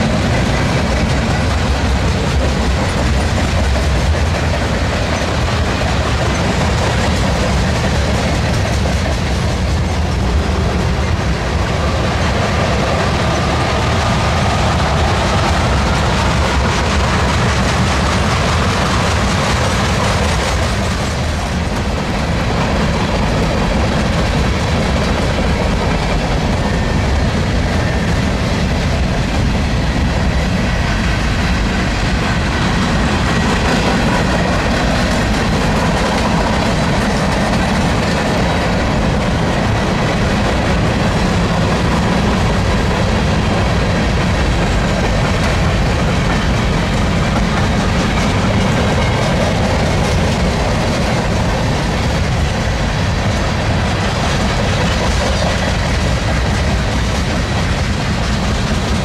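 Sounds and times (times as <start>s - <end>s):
freight train wheels on rails: 0.0s - 59.0s.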